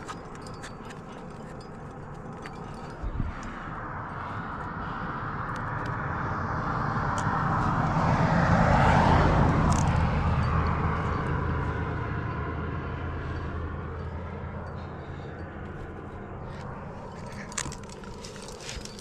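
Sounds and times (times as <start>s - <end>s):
vehicle passing by: 0.0s - 19.0s.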